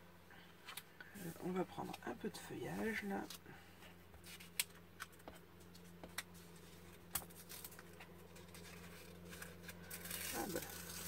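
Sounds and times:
steady low hum: 0.0 - 11.0
paper rustling under hand: 4.2 - 11.0.

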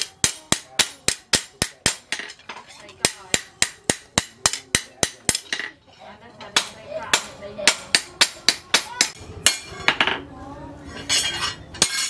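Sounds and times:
hammer striking metal on anvil: 0.0 - 2.4, 3.0 - 5.7.

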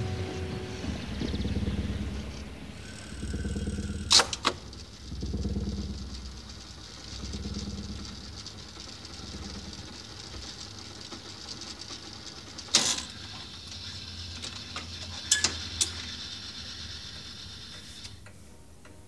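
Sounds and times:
machine humming with flutter: 0.0 - 18.3
sharp clicks: 2.9 - 4.8.

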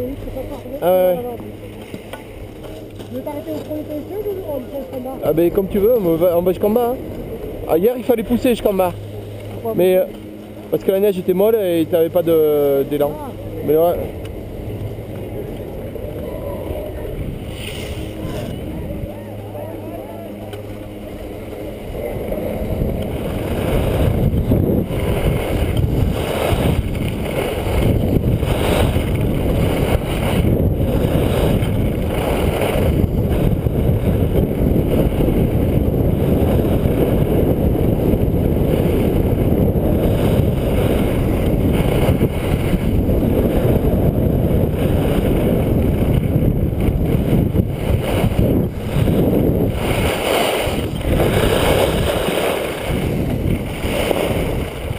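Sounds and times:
wind buffeting microphone: 0.0 - 54.9
skis scraping on snow: 17.4 - 18.8, 24.9 - 34.0, 47.0 - 54.9.

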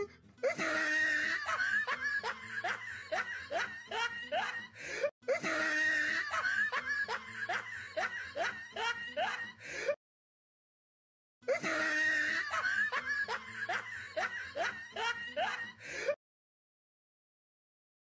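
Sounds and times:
person laughing: 0.4 - 9.7, 11.5 - 16.2.

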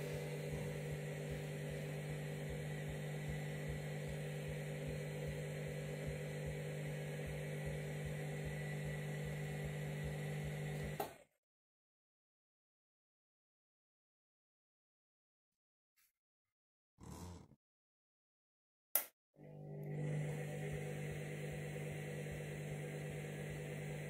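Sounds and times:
washing machine humming: 0.0 - 11.0, 19.4 - 24.0.

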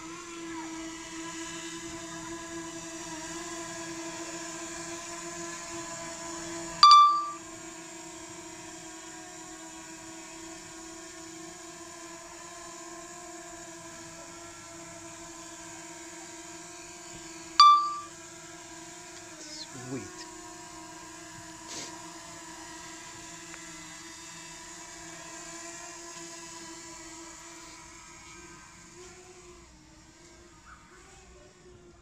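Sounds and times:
drone propellers humming: 1.8 - 7.7, 13.0 - 32.0
sharp electronic beeps: 6.8 - 7.4, 17.6 - 18.1.

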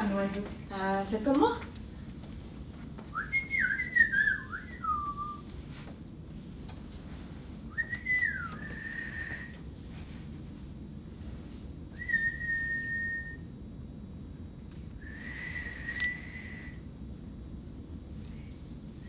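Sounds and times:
person whistling birdsong: 3.1 - 5.5, 7.7 - 9.6, 12.0 - 13.5, 15.0 - 16.8.

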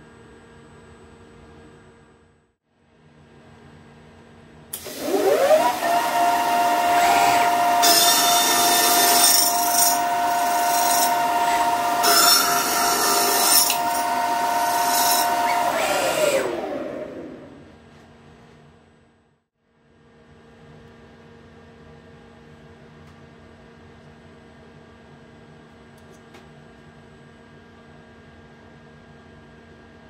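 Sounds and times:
saw cutting through aluminium: 4.8 - 17.6
spindle whine: 4.8 - 17.8.

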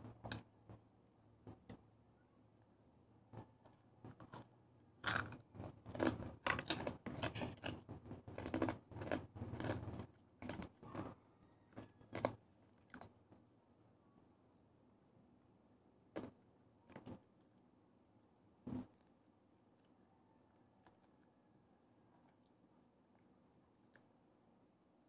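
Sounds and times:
crunchy chewing: 3.4 - 13.2.

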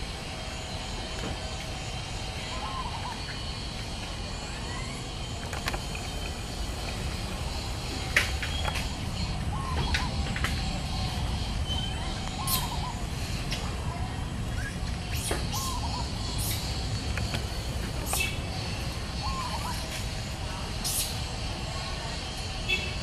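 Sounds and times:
short chirping calls: 4.5 - 13.4.

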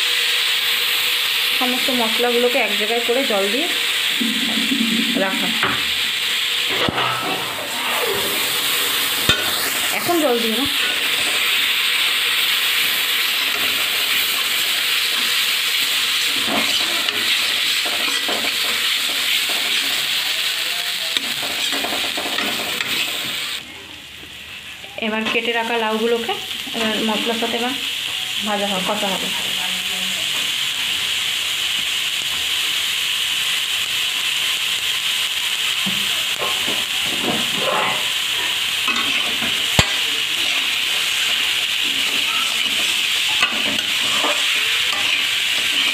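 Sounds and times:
onions sizzling in hot oil: 0.0 - 45.9
metal spatula stirring: 37.5 - 45.9.

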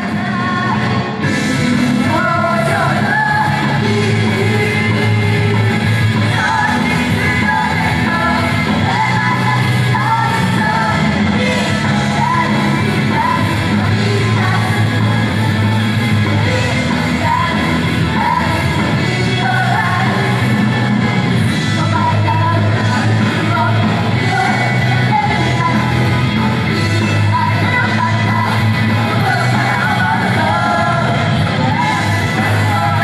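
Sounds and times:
group singing: 0.0 - 33.0
pop-rock backing track: 0.0 - 33.0.

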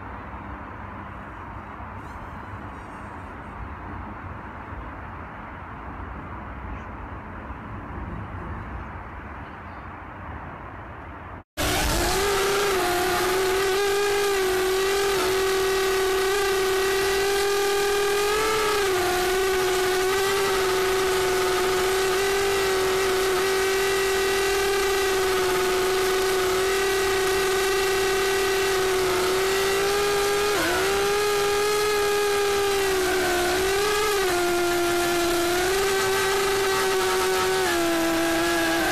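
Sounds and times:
drone propellers whining: 11.6 - 38.9.

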